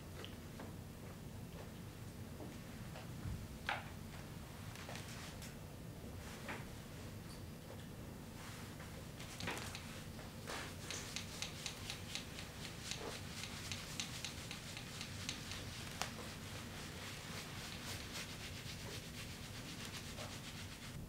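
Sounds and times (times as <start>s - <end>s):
shaving brush strokes on skin: 9.2s - 21.0s.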